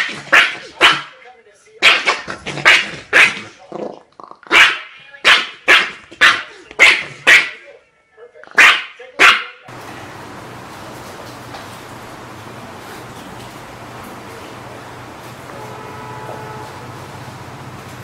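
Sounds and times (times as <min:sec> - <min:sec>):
small dog yapping: 0:00.0 - 0:01.1, 0:01.8 - 0:03.6, 0:04.5 - 0:07.6, 0:08.5 - 0:09.6.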